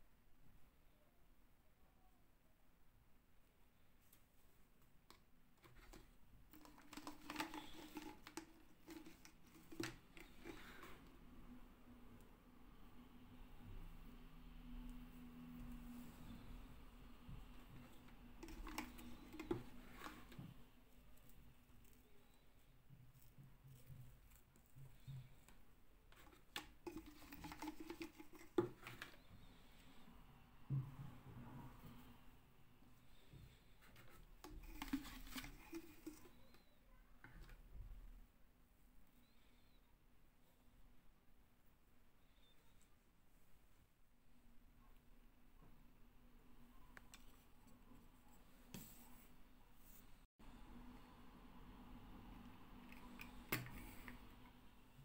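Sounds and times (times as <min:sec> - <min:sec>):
hand rummaging in plastic jar: 0:05.6 - 0:11.0, 0:17.8 - 0:20.4, 0:26.2 - 0:29.2, 0:34.0 - 0:36.7.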